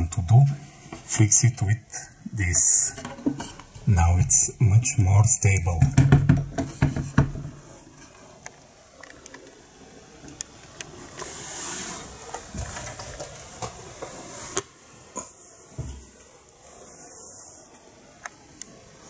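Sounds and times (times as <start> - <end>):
knocks on metal table legs: 5.8 - 7.5
soft rustle: 7.6 - 19.0.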